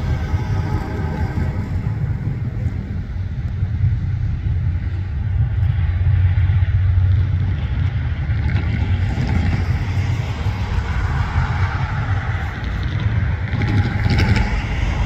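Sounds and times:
freight train rumbling: 0.0 - 15.0
higher rolling noise: 0.0 - 15.0.

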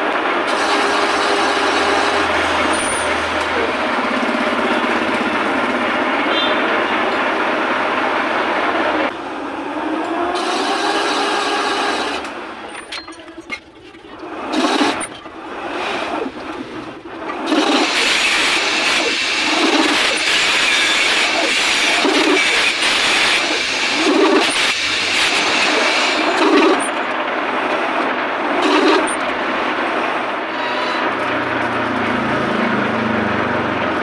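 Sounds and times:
lathe tool scraping metal: 0.5 - 5.8, 14.4 - 27.1, 28.6 - 29.4, 30.3 - 31.9.

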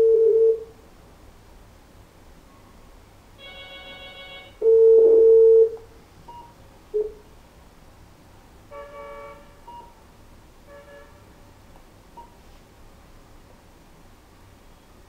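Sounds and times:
buzzy phone tone: 0.0 - 0.7, 3.4 - 5.8.

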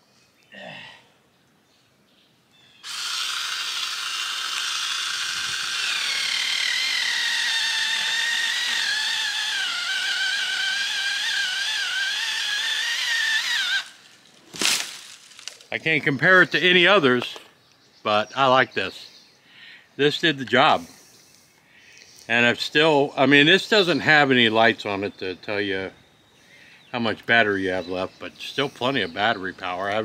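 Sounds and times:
electric chainsaw whining: 2.8 - 15.6
chainsaw cutting through tree: 2.8 - 15.7.

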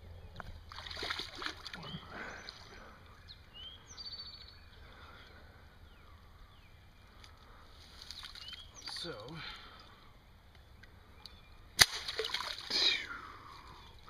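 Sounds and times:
boots splashing through water: 11.8 - 12.8.

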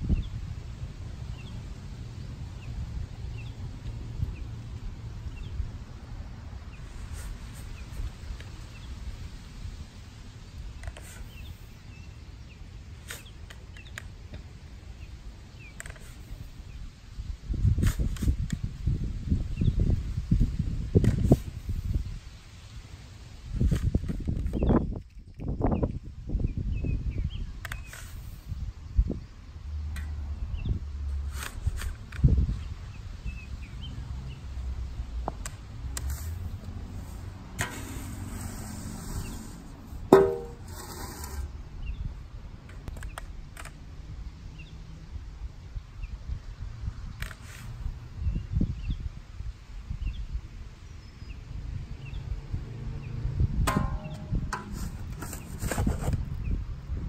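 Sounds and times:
wind rumble on microphone: 0.0 - 12.5, 14.7 - 40.2, 41.0 - 57.0
small birds chirping: 1.2 - 5.8, 10.5 - 17.0, 24.3 - 30.9
soil scraped across grass: 6.8 - 8.2, 10.8 - 11.8, 15.8 - 16.6, 17.7 - 18.4, 27.8 - 28.5, 31.2 - 32.1, 36.0 - 41.6, 47.3 - 47.8, 53.7 - 56.3
shovel scraping and knocking: 37.6 - 41.5, 53.7 - 56.3.

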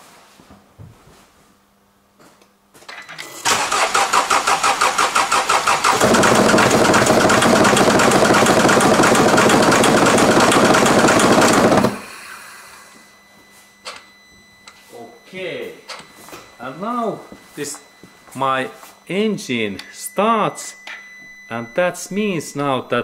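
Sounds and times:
starter cranking engine: 3.3 - 12.0
diesel engine running: 3.4 - 12.2.

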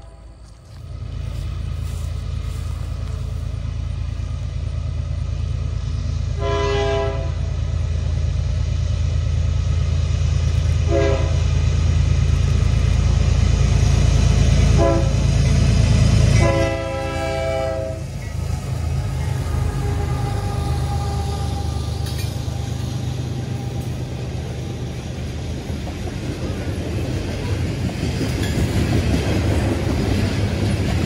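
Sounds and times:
locomotive air horn: 0.0 - 0.7, 6.3 - 7.6, 10.8 - 11.5, 14.7 - 15.3, 16.3 - 18.2, 18.9 - 23.8
diesel locomotive engine rumble: 0.0 - 31.0.

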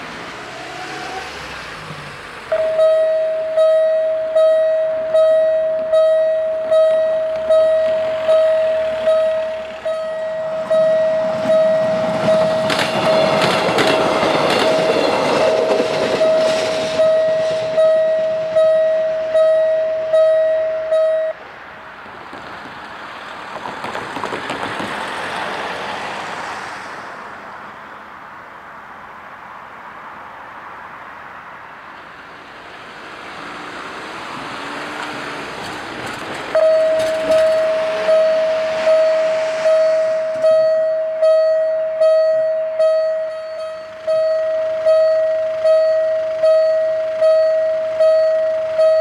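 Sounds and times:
passing traffic: 0.0 - 49.0
level-crossing warning bell: 2.5 - 21.4, 36.5 - 49.0
train wheels rushing and clattering: 10.6 - 18.0, 22.2 - 26.3, 34.3 - 40.5.

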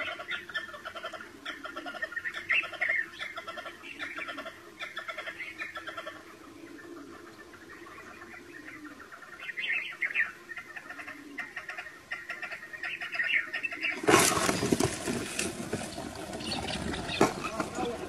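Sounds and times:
partridges chirping and calling: 0.0 - 14.9, 16.0 - 18.0
birds flapping and scrambling: 13.7 - 18.0.

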